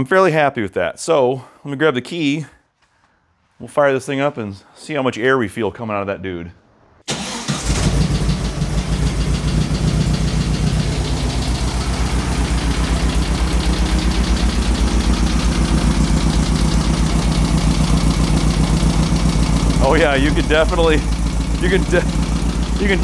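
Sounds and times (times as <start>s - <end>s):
car engine starting and idling: 6.9s - 23.0s.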